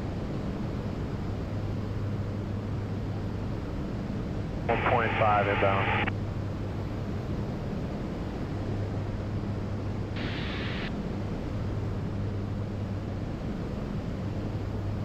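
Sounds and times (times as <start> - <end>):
aircraft engines and propellers droning: 4.5 - 15.0.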